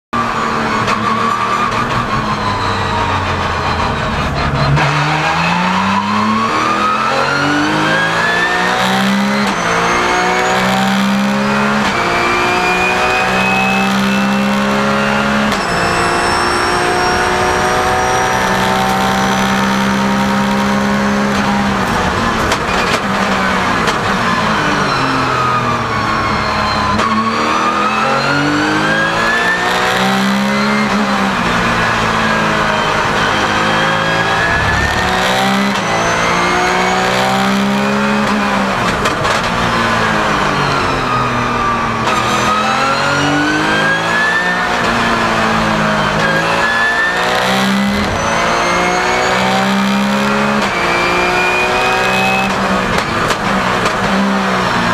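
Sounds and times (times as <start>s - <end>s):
race car engine: 0.0s - 54.9s
high whine: 31.3s - 38.0s.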